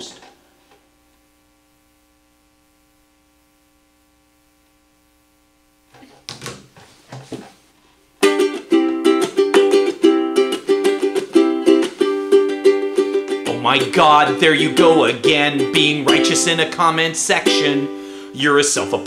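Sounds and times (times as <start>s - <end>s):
faint steady hum: 0.0s - 19.0s
ukulele strummed: 8.2s - 19.0s.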